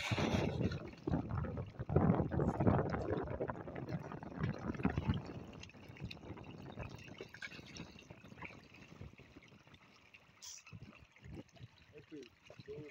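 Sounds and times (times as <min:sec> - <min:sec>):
fish splashing at water surface: 0:00.0 - 0:01.0.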